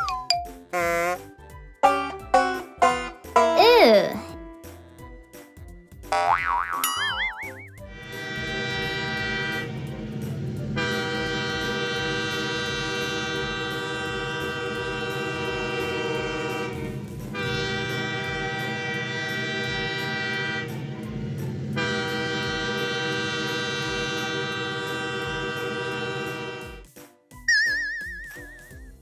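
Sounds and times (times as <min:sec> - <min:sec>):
toy train horn blasts: 0:00.7 - 0:03.6, 0:08.0 - 0:09.8, 0:10.8 - 0:21.0, 0:21.8 - 0:26.8
low chugging beat: 0:01.8 - 0:04.5.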